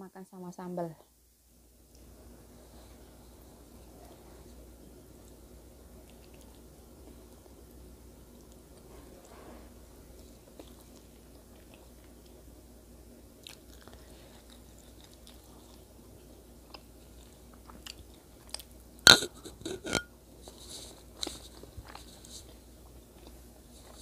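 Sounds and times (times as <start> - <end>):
person chewing: 13.4 - 16.0, 16.6 - 20.1.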